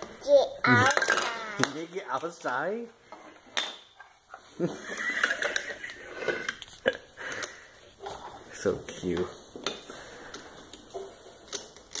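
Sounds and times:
toddler voice: 0.1s - 1.7s
plastic blocks clacking: 0.8s - 2.7s, 11.1s - 12.0s.

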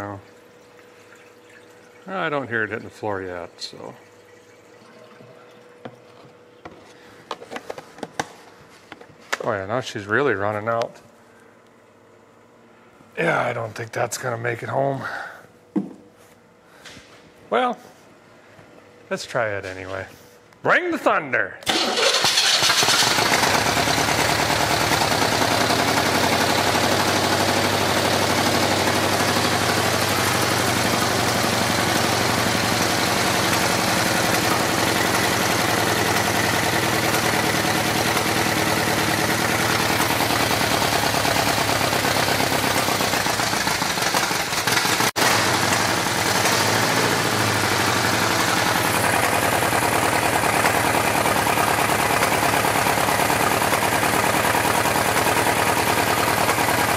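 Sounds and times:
engine running roughly: 21.7s - 56.9s.

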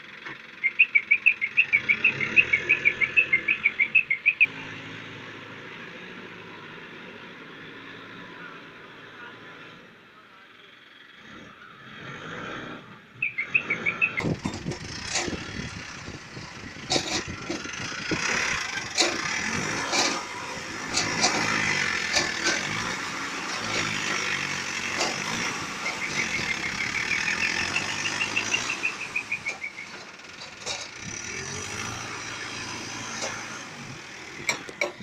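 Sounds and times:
diesel engine under load: 0.0s - 35.0s
high chirps: 0.6s - 4.5s, 13.2s - 14.7s, 25.8s - 30.0s.

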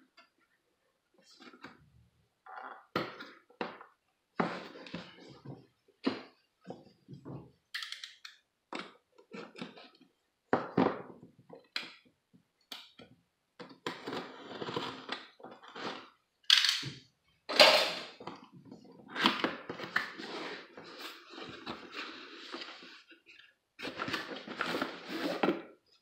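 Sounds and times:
cardboard scrapes and rustles: 20.1s - 25.6s.

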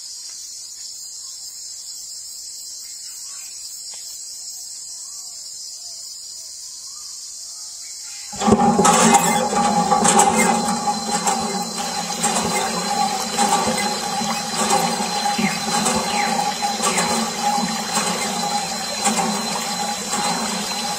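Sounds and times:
small electric water pump humming: 8.4s - 20.9s.

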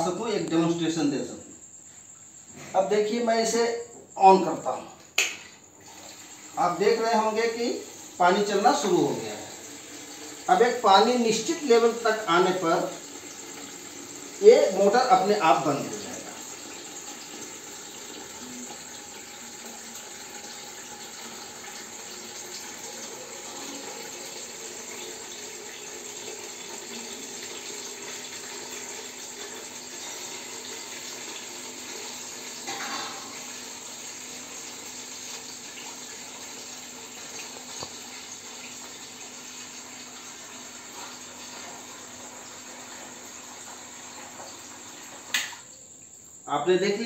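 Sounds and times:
water pouring into plastic tank: 5.4s - 6.9s.

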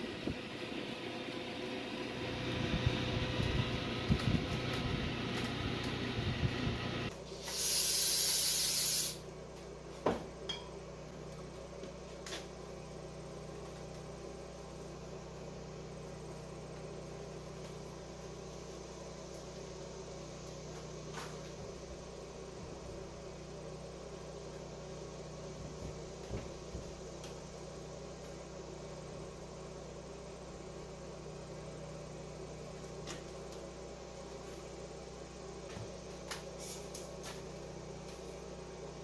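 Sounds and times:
compressed air blast: 7.2s - 9.2s, 36.6s - 37.0s.

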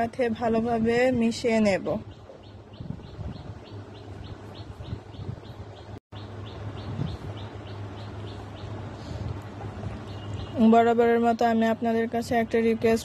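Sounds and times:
bird chirping: 1.8s - 8.8s, 9.9s - 10.9s.

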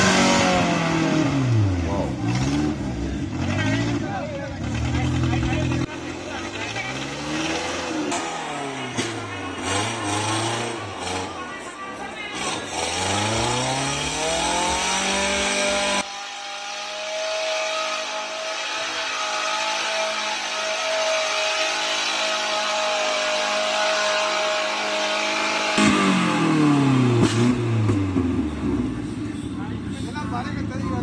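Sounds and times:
engine revving hard: 0.0s - 29.1s.

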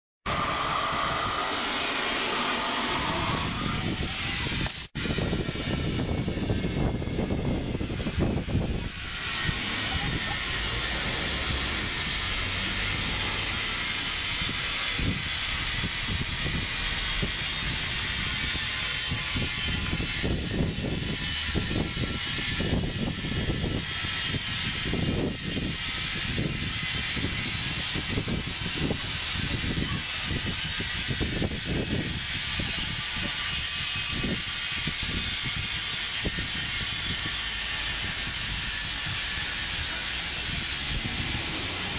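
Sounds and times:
low rumble: 0.3s - 22.0s, 37.6s - 41.9s
compressed air hissing through hose: 0.3s - 41.9s.

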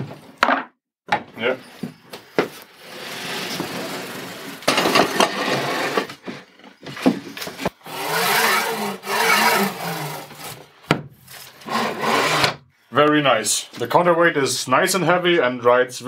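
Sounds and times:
wood scraping on workbench: 2.4s - 10.6s.

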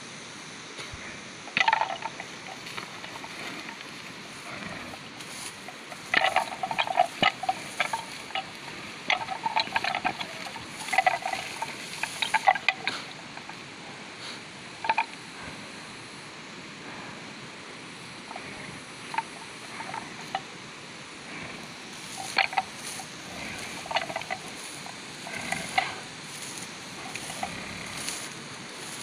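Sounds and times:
horns clacking together: 1.5s - 13.6s, 14.8s - 15.2s, 19.1s - 20.5s, 21.9s - 29.0s.

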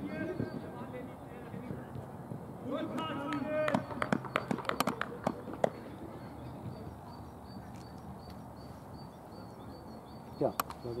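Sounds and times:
faint outdoor background noise: 0.0s - 11.0s
small bird chirping: 3.2s - 11.0s.

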